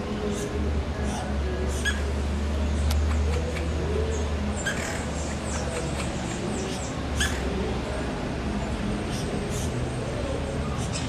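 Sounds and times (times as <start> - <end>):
high-pitched bird chirps: 4.6 - 5.8.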